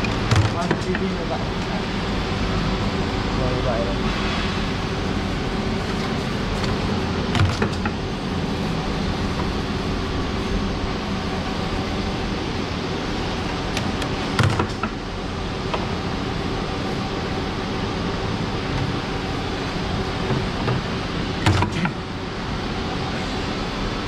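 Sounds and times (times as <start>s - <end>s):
machine motor and conveyor hum: 0.0s - 24.0s.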